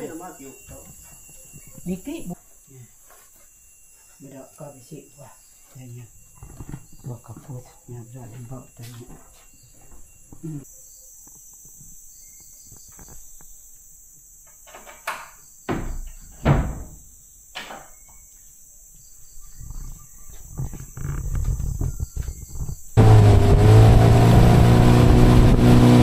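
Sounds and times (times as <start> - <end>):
insects chirping: 0.0 - 23.0.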